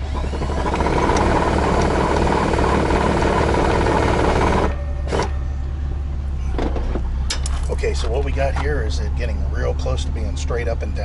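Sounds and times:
electric jack motor running: 0:00.0 - 0:05.4.

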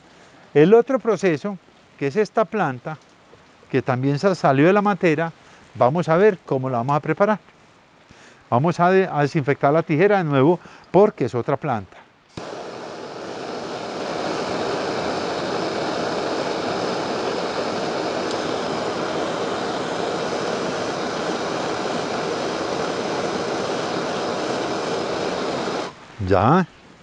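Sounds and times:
gas torch flame rushing: 0:12.3 - 0:26.0.

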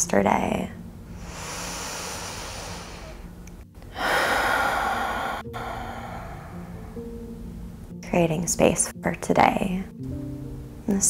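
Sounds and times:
woman exhaling: 0:01.1 - 0:07.0
woman inhaling deeply: 0:01.1 - 0:07.1.

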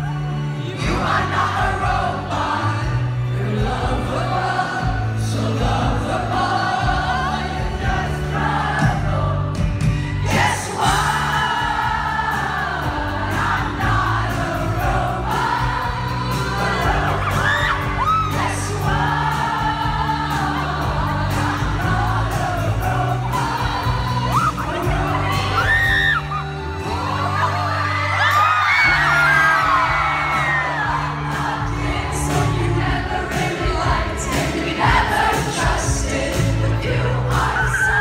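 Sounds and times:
crowd noise: 0:00.0 - 0:38.0
live pop band: 0:00.0 - 0:38.0
woman singing: 0:10.2 - 0:29.2.

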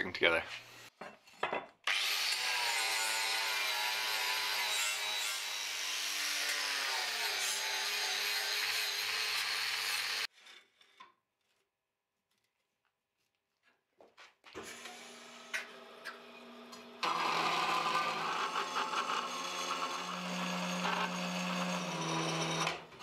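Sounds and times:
angle grinder grinding steel: 0:01.9 - 0:10.3, 0:14.7 - 0:23.0.

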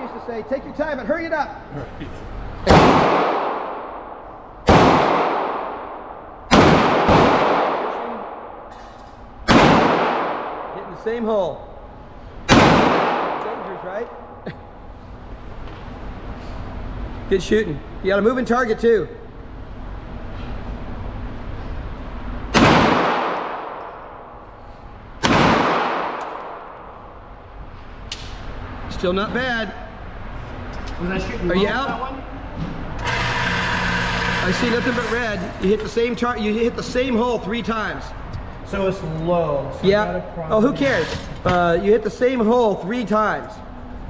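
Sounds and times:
pistol shots echoing indoors: 0:02.6 - 0:11.0, 0:12.5 - 0:13.8, 0:22.5 - 0:28.4.

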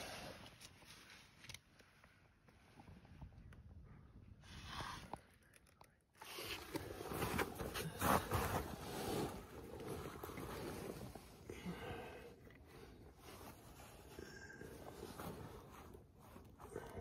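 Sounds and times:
clothing and pine needles rustling: 0:12.6 - 0:17.0.

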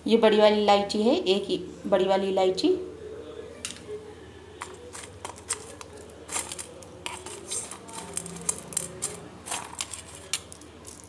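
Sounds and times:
containers clicking and tapping: 0:04.6 - 0:11.0.

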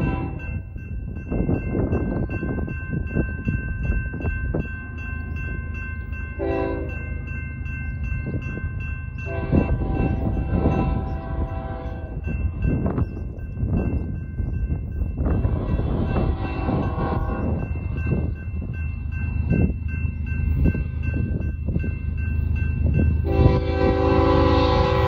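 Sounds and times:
locomotive horn blasts: 0:00.0 - 0:00.4, 0:06.4 - 0:07.0, 0:09.3 - 0:12.2, 0:15.6 - 0:17.4, 0:23.2 - 0:25.0
railroad crossing bells ringing: 0:00.0 - 0:25.0.

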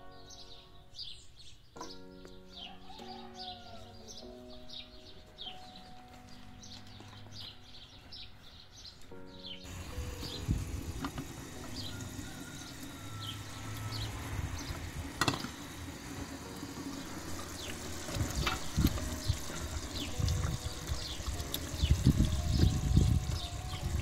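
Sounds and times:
stew bubbling in a pot: 0:09.7 - 0:24.0.

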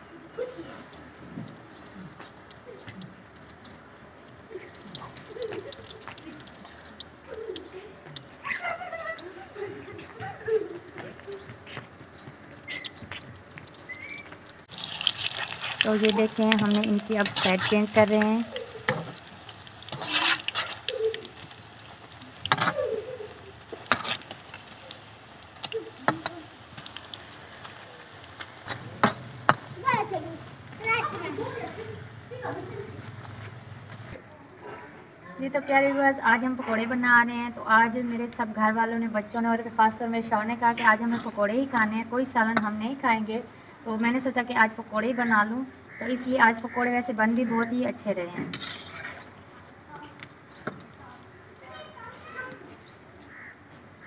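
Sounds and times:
small birds chirping: 0:00.0 - 0:34.2, 0:37.9 - 0:53.6
frying in hot oil: 0:00.0 - 0:34.6, 0:35.4 - 0:54.0
doves cooing: 0:00.0 - 0:34.8.

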